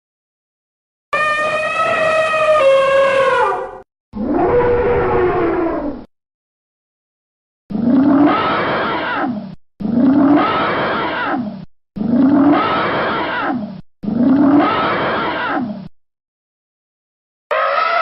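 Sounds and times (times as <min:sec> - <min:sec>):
elephant roar: 0:01.2 - 0:06.0, 0:07.7 - 0:15.8, 0:17.5 - 0:18.0.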